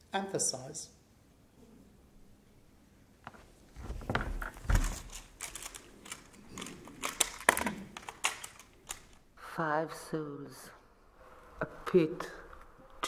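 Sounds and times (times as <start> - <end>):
typewriter keys clicking: 4.8 - 9.2.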